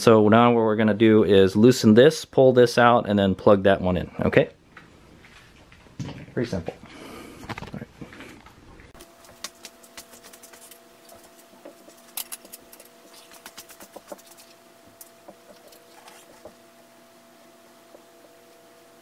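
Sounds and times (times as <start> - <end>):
steady hum: 6.8 - 19.0.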